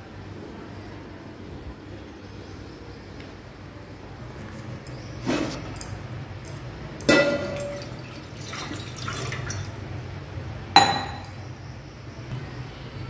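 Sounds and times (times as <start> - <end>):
metallic clank ringing: 7.1 - 7.9, 10.8 - 11.4
water poured into metal pot: 7.1 - 9.8.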